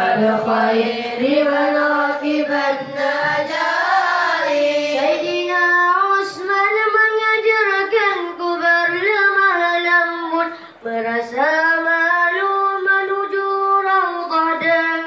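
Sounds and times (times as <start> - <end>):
children singing in unison: 0.0 - 15.0.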